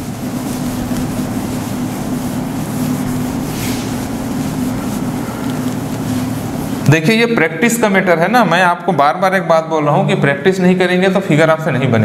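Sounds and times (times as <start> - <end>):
duster rubbing chalkboard: 0.0 - 8.6.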